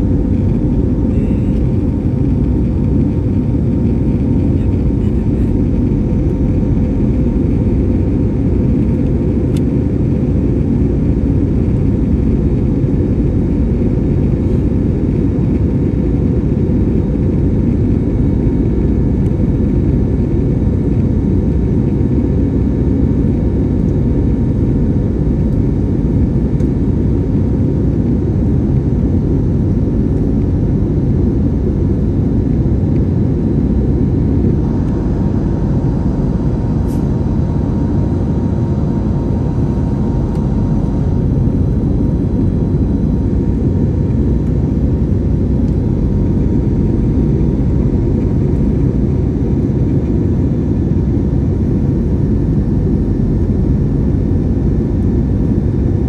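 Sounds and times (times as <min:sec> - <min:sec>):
airliner cabin engine drone: 0:00.0 - 0:56.0.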